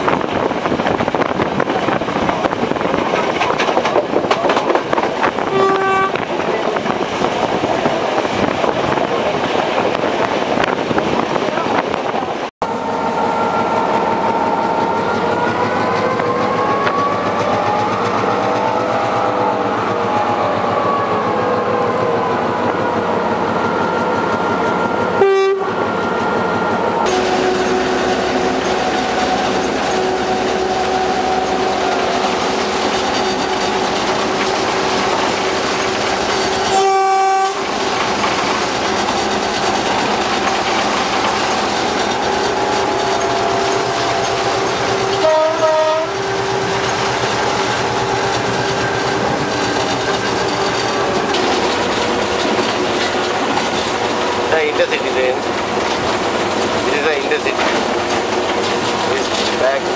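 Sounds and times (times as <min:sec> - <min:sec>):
diesel locomotive engine: 0:00.0 - 0:59.9
train horn blasts: 0:05.5 - 0:06.3, 0:12.6 - 0:15.4, 0:16.1 - 0:21.4, 0:25.1 - 0:26.4, 0:27.0 - 0:32.1, 0:36.6 - 0:37.8, 0:43.3 - 0:46.8.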